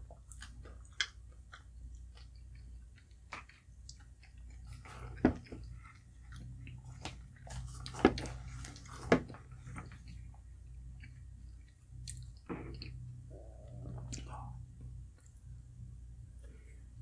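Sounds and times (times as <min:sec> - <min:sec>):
wet chewing: 0:00.0 - 0:14.5
low hum: 0:04.5 - 0:17.0.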